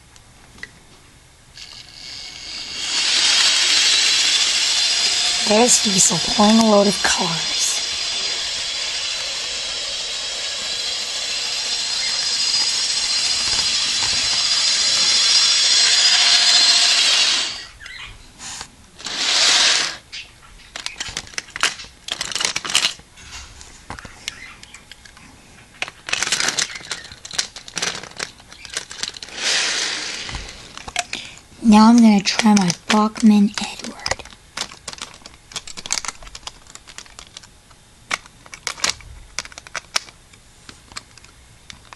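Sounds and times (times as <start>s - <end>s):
model train wheels on rail: 1.6s - 17.7s, 19.0s - 20.0s, 26.1s - 31.0s
model train motor whine: 1.6s - 18.0s, 19.0s - 20.1s, 27.8s - 30.8s.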